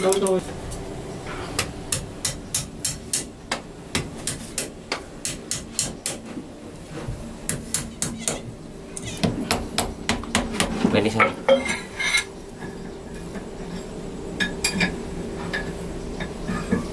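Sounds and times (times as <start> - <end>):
tool hammering on metal: 1.6 - 6.3, 7.5 - 8.5, 9.2 - 10.8.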